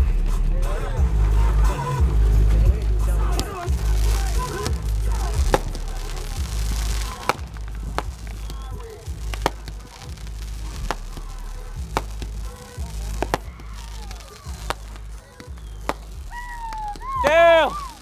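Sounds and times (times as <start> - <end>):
music playing: 0.0 - 18.0
fireworks bangs: 1.1 - 18.0.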